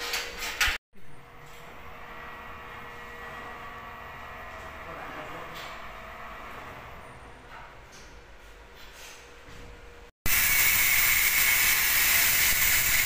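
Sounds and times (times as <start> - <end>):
loud steady hissing: 10.3 - 13.0.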